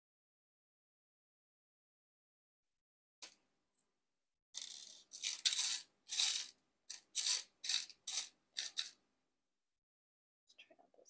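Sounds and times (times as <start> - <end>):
beads rattling in plastic box: 4.6 - 9.0.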